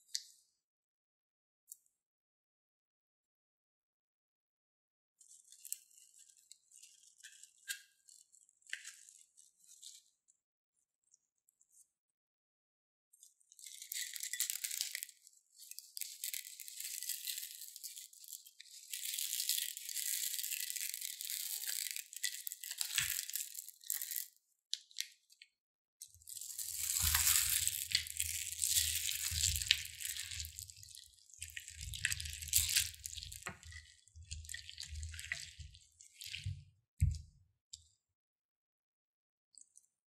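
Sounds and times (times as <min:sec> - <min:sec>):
plastic beads rattling: 0:26.4 - 0:30.5.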